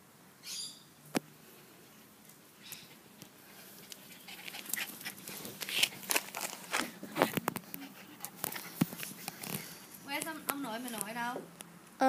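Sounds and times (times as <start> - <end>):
dogs scuffling on grass: 2.0 - 11.4
dogs panting: 2.8 - 6.4, 7.0 - 10.0.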